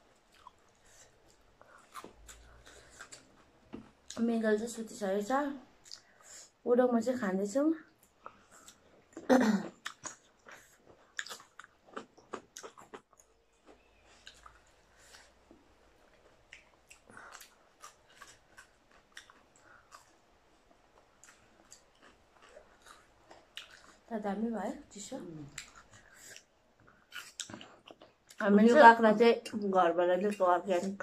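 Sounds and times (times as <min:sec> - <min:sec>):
wet chewing: 0:00.2 - 0:04.2, 0:08.0 - 0:15.4, 0:16.0 - 0:24.1, 0:25.5 - 0:28.4.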